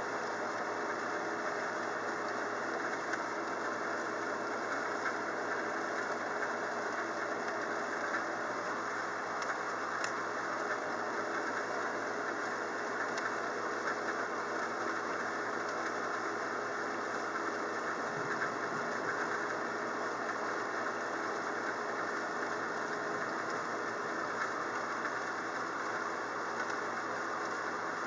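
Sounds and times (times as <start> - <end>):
steady rain hiss: 0.0 - 28.0
faint ticks: 13.0 - 14.7, 26.5 - 26.8.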